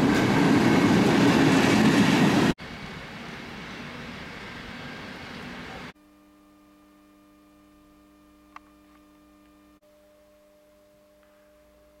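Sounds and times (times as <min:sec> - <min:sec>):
train rail noise: 0:00.0 - 0:05.9
small click: 0:08.5 - 0:09.6.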